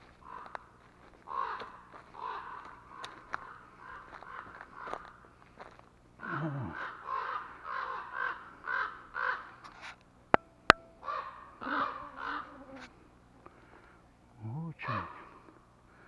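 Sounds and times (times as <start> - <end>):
crows cawing: 0.0 - 9.7, 11.0 - 12.8, 14.8 - 16.0.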